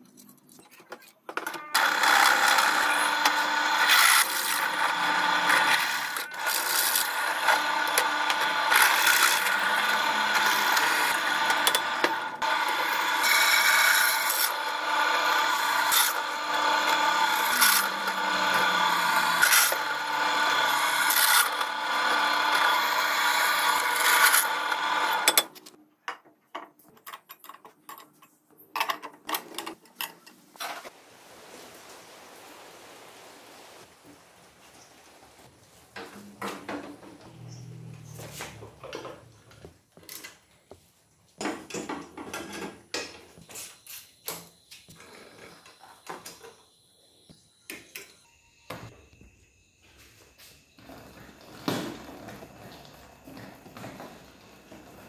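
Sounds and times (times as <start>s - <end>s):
drill press whining through metal: 1.8s - 25.5s.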